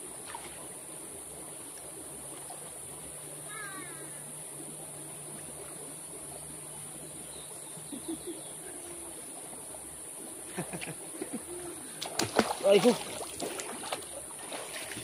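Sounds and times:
river water flowing: 0.0 - 15.0
high insect drone: 0.3 - 15.0
hands splashing in water: 12.0 - 15.0.

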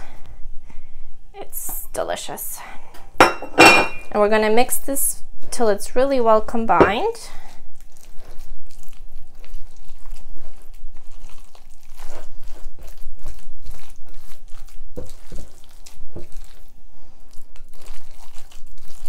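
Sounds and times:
spatula stirring wet filling: 6.5 - 19.0.

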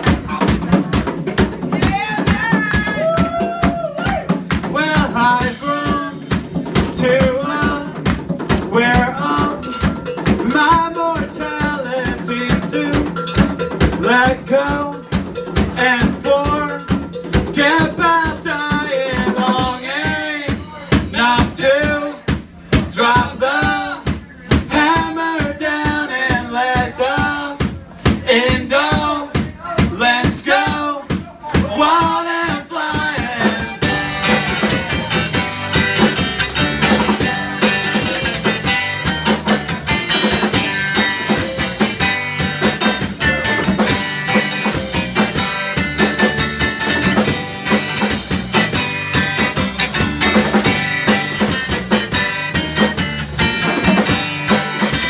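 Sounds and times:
drum kit beat: 0.0 - 55.0
guitars: 4.1 - 20.3, 32.9 - 55.0.

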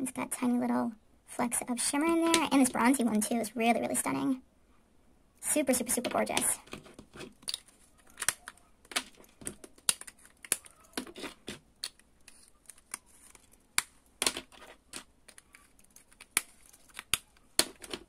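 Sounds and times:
plastic pots clicking: 6.0 - 18.0.

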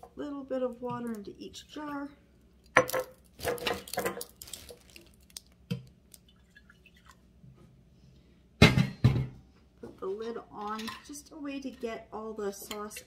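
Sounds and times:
water splashing into glass jars: 6.1 - 7.2.

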